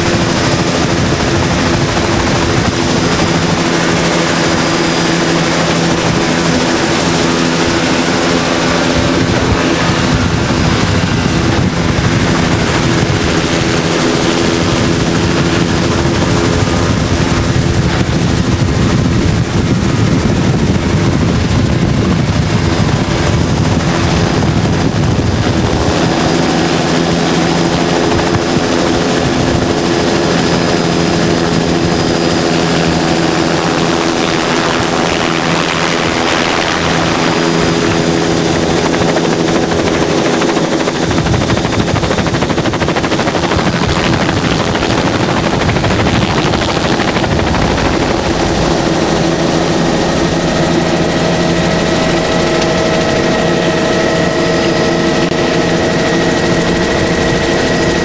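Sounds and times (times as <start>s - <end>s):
engine running steadily: 0.0s - 58.0s
loud rushing noise: 43.6s - 55.7s.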